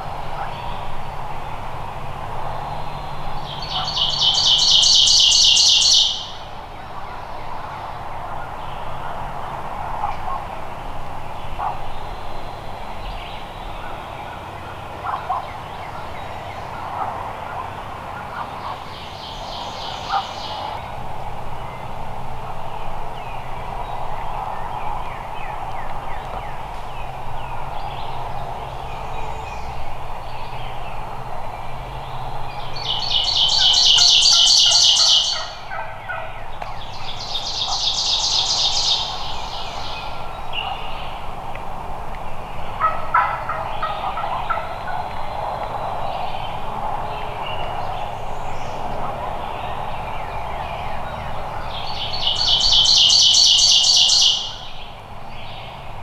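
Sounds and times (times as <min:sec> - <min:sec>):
songbird rapid trill: 0:02.7 - 0:07.4, 0:32.1 - 0:35.7, 0:36.8 - 0:41.2, 0:51.6 - 0:55.0
turkey gobbling: 0:33.6 - 0:36.3, 0:42.8 - 0:44.7.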